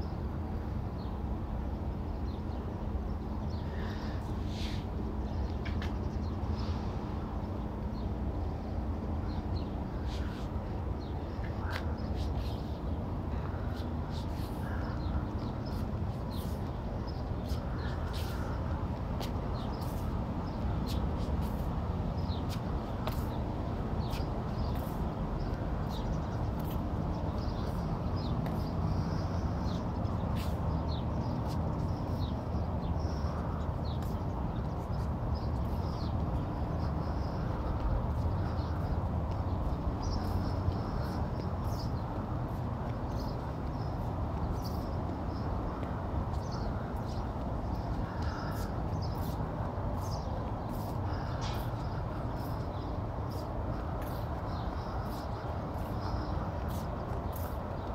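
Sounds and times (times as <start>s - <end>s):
small birds chirping: 1.0s - 57.9s.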